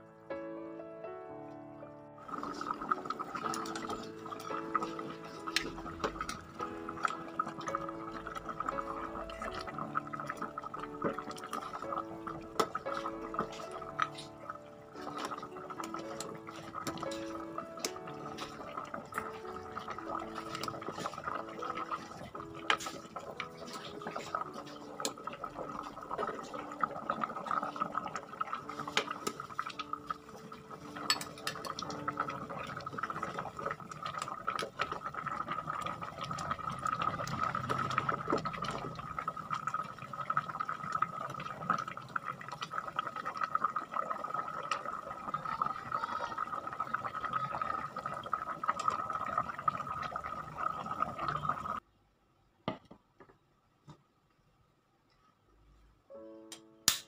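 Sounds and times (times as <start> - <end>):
soup bubbling at a boil: 2.2 - 51.8
ladle scraping enamel pot: 12.6 - 29.7, 30.7 - 34.6.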